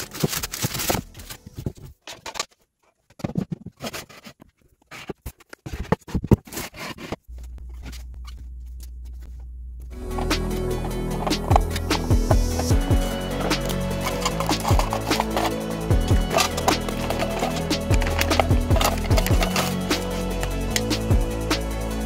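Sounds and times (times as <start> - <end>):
mesh bag crinkling and rustling: 0.0 - 2.4
steady low hum: 7.3 - 21.9.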